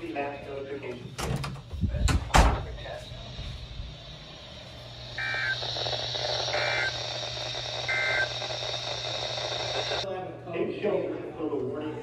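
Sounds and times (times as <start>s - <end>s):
high-pitched whine: 2.6s - 10.0s
low hum: 2.8s - 10.0s
electronic alert beeps: 5.2s - 10.0s.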